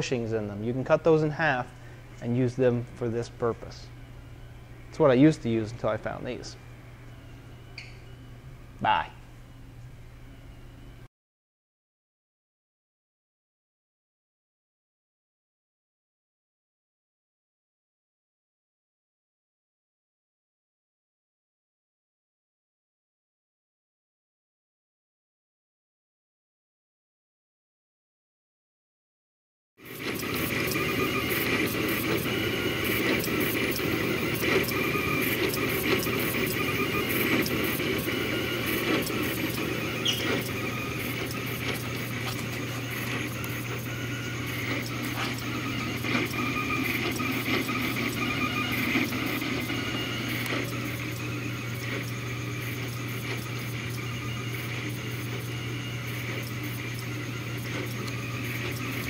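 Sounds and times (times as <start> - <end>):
steady low hum: 0.0 - 11.1
stepper motors whining: 0.0 - 11.1, 29.8 - 59.0.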